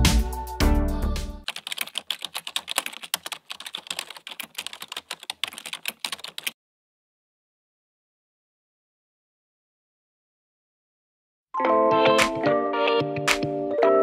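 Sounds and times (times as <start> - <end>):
background music: 0.0 - 1.5, 11.6 - 14.0
computer keyboard typing: 1.4 - 6.6.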